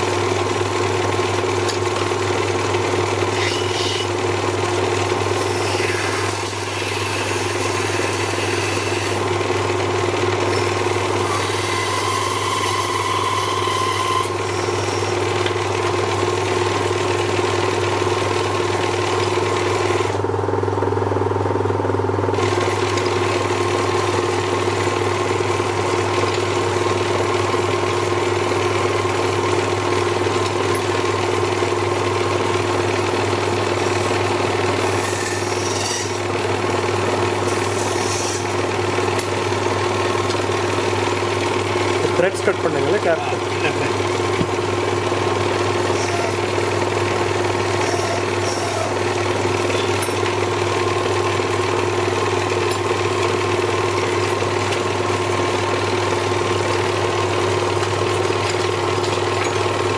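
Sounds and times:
electric lathe humming: 0.0s - 20.4s, 22.3s - 59.9s
tool scraping spinning blank: 5.0s - 9.4s, 10.5s - 15.5s, 33.0s - 46.7s, 47.4s - 51.6s.

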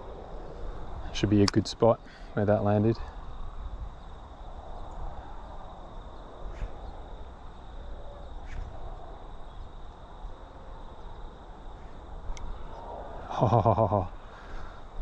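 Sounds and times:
low outdoor background noise: 0.0s - 15.0s
faint clicks: 12.3s - 12.8s.

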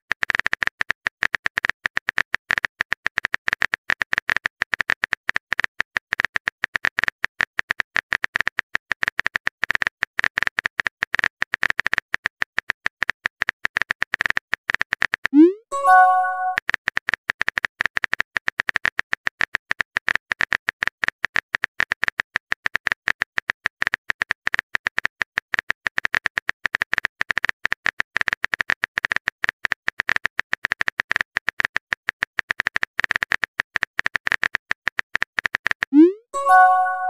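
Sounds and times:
phone keyboard typing clicks: 15.3s - 16.6s.

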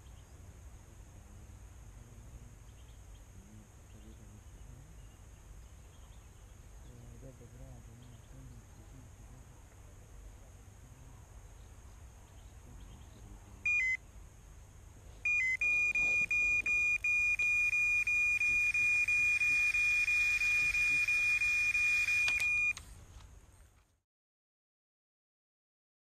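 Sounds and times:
bite alarm beeping: 13.6s - 14.0s, 15.2s - 22.8s.

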